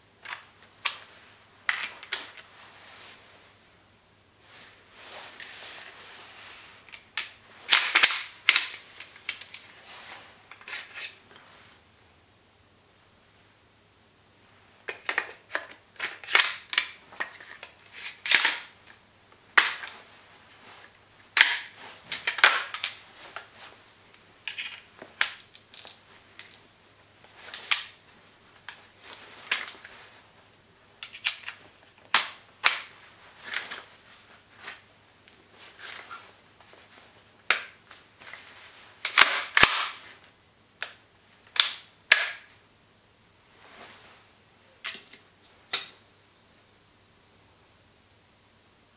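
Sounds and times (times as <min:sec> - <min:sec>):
airsoft rifle parts clicking: 0:06.9 - 0:09.6, 0:31.0 - 0:32.9, 0:39.1 - 0:40.0.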